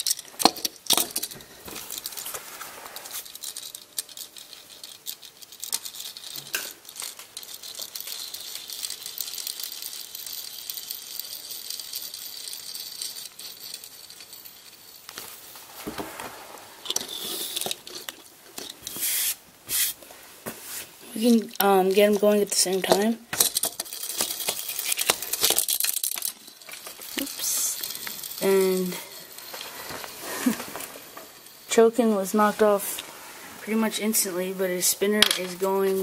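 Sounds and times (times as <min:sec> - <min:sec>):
plastic spinners whirring: 0:00.0 - 0:20.0, 0:21.0 - 0:36.0
plastic clattering: 0:21.4 - 0:28.4.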